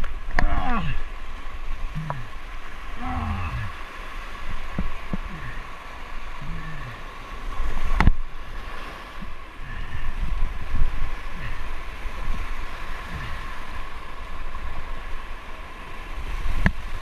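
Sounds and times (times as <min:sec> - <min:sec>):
fast water rushing: 0:00.0 - 0:17.0
wind on the microphone: 0:00.0 - 0:17.0
man grunting with effort: 0:00.4 - 0:01.1, 0:01.9 - 0:02.3, 0:03.0 - 0:03.8, 0:05.2 - 0:05.7, 0:06.4 - 0:07.0.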